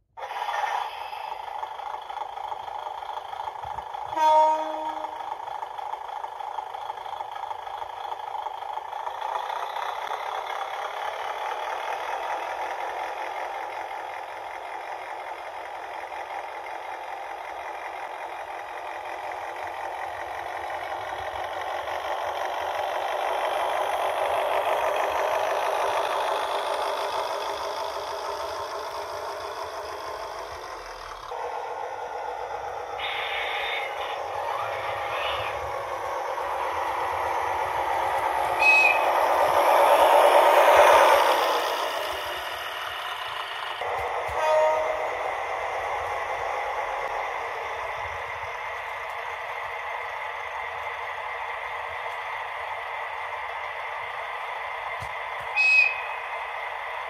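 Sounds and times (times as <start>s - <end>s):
model train motor and wheels whirring: 0.0s - 57.0s
short horn toot: 44.3s - 45.1s.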